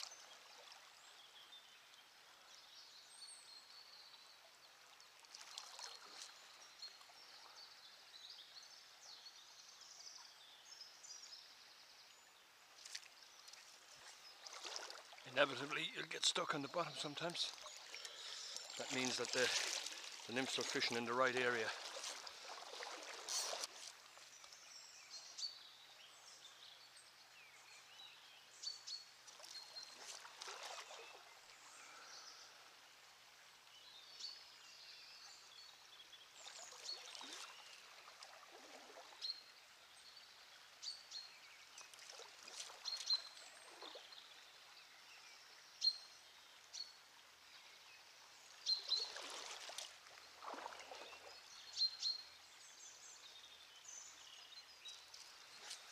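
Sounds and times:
water splashes: 0.0s - 2.0s, 4.8s - 7.8s, 12.7s - 24.8s, 29.2s - 32.4s, 36.2s - 39.8s, 41.5s - 44.7s, 48.4s - 52.0s, 54.9s - 55.9s
small birds chirping: 0.0s - 33.0s, 33.7s - 55.9s
river riffle running: 12.8s - 24.8s.

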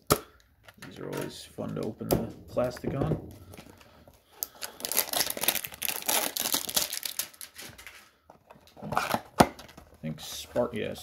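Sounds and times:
plastic wrap crackling: 3.3s - 8.1s.

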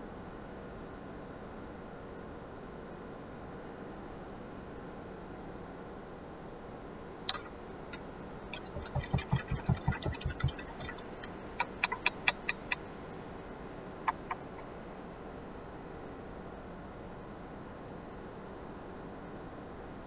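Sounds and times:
sharp clicks: 7.3s - 7.5s, 8.5s - 12.8s, 14.1s - 14.6s.

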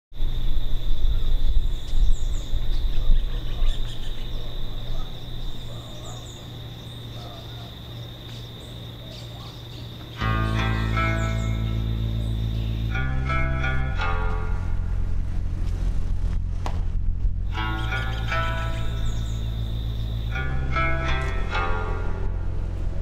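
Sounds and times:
high insect trill: 0.2s - 23.0s
birds chirping: 0.5s - 16.0s, 17.3s - 23.0s
low rumble: 10.2s - 23.0s.

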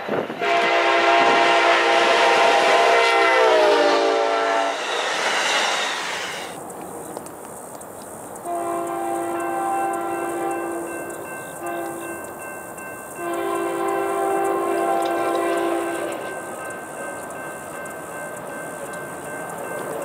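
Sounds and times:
rush of passing train: 0.0s - 20.0s
train air horn: 0.2s - 6.6s, 8.4s - 11.0s, 11.6s - 12.2s, 13.2s - 16.4s.

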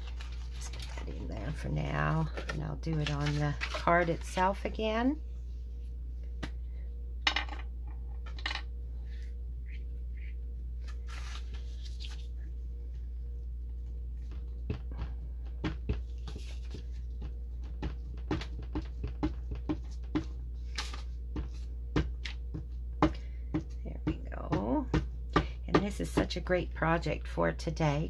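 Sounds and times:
paper rustling: 0.0s - 1.2s, 2.1s - 4.5s, 10.8s - 12.4s
low hum: 0.0s - 27.8s.

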